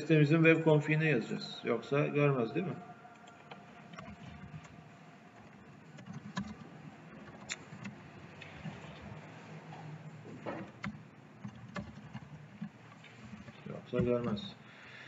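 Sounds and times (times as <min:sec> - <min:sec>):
low background hum: 0:00.0 - 0:15.0
keyboard keystrokes: 0:03.2 - 0:04.7, 0:05.9 - 0:09.1, 0:10.6 - 0:12.7.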